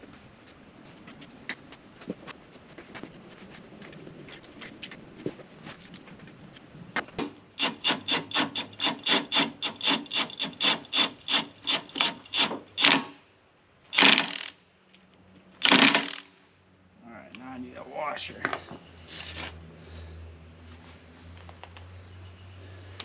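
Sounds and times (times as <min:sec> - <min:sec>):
hand tool rasping strokes: 0:07.6 - 0:13.0.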